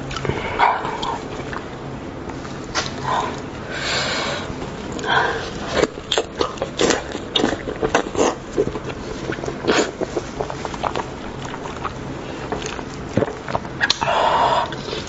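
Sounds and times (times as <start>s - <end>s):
wet chewing: 4.9s - 15.0s.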